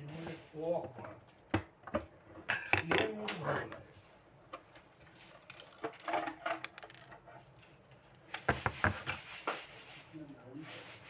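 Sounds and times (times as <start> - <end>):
plastic parts knocking and clattering: 5.4 - 7.4.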